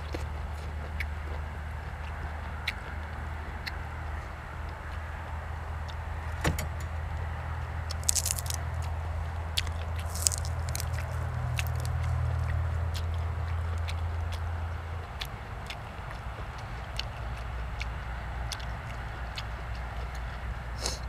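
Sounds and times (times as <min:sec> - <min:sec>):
steady low hum: 0:00.0 - 0:21.0
crisp crunching bites: 0:07.9 - 0:14.4.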